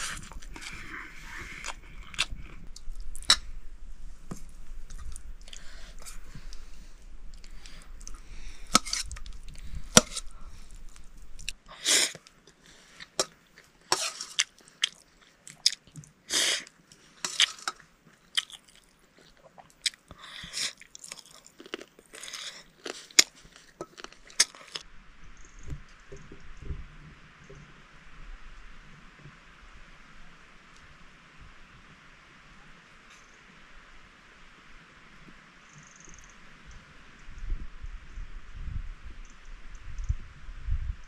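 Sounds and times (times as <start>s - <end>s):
person chewing and crunching: 0.0s - 3.4s, 4.9s - 6.6s, 7.3s - 24.9s.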